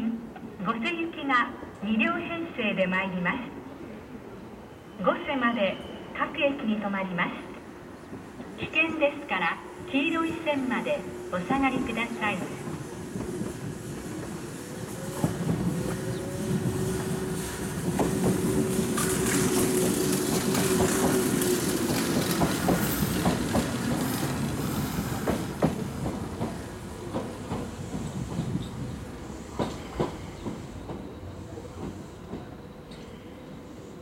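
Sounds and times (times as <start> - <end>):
train pulling in and slowing: 3.6 - 34.0
wheels clacking over rail joints: 12.6 - 28.7.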